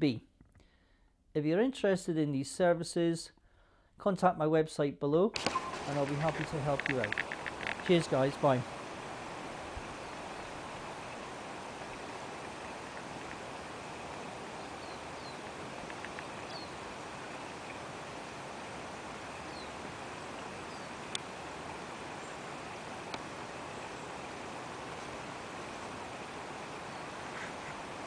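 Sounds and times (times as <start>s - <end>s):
faint bird chirps: 5.4s - 6.5s, 14.6s - 16.8s, 19.4s - 19.8s
sharp clicks: 5.4s - 8.6s, 15.8s - 16.3s
steady hiss: 5.4s - 28.0s.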